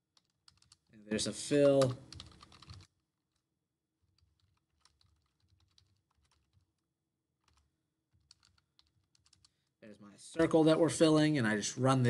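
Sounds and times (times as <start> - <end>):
computer keyboard typing: 0.1 - 0.9, 1.6 - 3.4, 4.0 - 6.8, 7.4 - 9.7.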